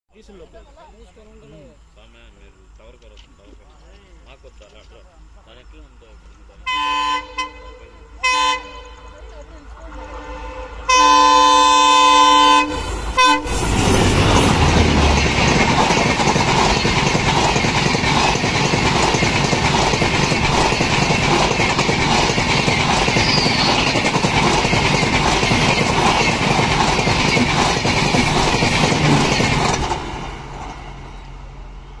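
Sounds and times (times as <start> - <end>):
train wheels roaring on rail: 5.5 - 32.0
train horn blasts: 6.6 - 9.2, 9.8 - 13.8.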